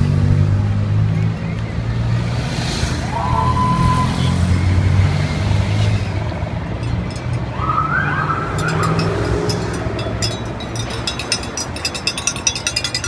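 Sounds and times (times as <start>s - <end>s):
vehicle engines rumbling: 0.0s - 13.0s
police siren warbling: 7.6s - 9.2s.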